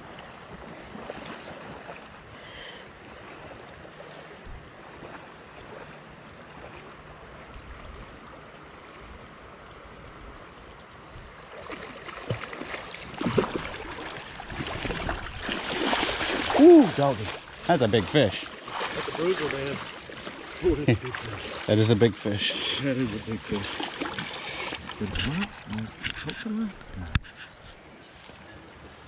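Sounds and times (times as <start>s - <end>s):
creek water flowing: 0.0s - 29.0s
fish splashing and knocking: 11.7s - 17.5s, 23.4s - 27.5s.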